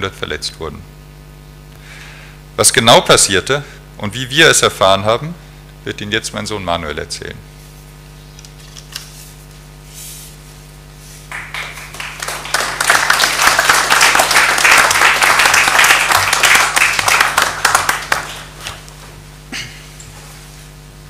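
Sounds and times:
audience applauding: 0:11.3 - 0:18.9.

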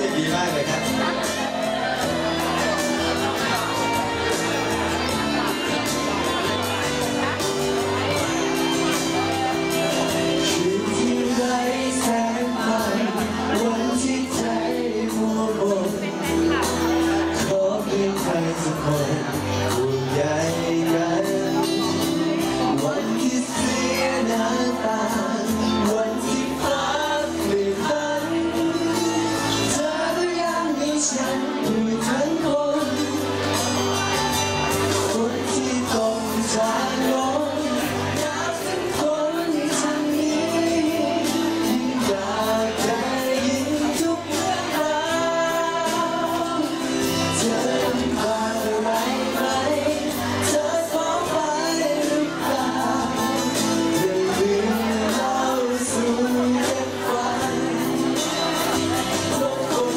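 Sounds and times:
man singing into a microphone: 0:00.0 - 0:59.9
music accompaniment: 0:00.0 - 0:59.9.

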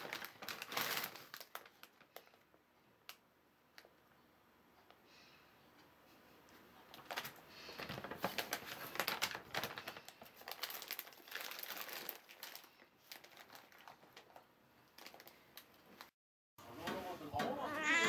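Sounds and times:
plastic packaging crinkling: 0:00.0 - 0:02.4, 0:06.9 - 0:16.1.

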